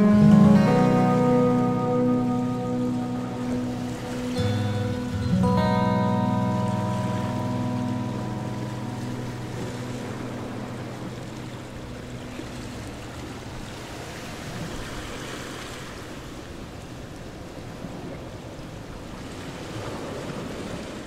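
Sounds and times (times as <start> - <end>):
music chord ringing out: 0.0 - 14.1
steady rushing noise: 0.0 - 15.9.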